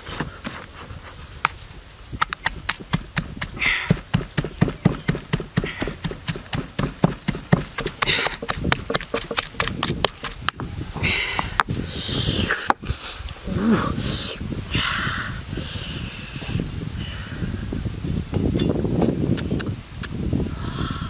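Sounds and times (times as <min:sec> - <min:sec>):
pestle pounding in stone mortar: 0:02.2 - 0:10.7.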